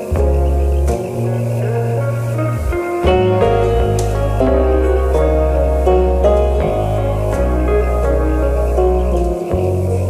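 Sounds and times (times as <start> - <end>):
ambient music with deep bass: 0.0 - 10.0.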